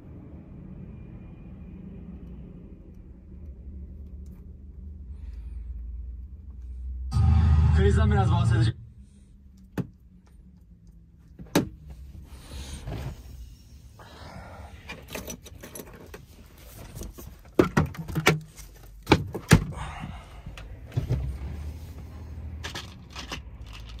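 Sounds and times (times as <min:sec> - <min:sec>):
low steady hum: 0:00.0 - 0:18.9.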